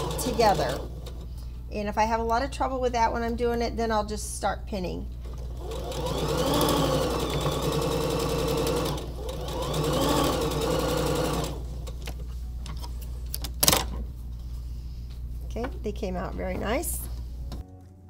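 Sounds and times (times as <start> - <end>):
sewing machine stitching: 0.0 - 1.2, 5.3 - 12.0.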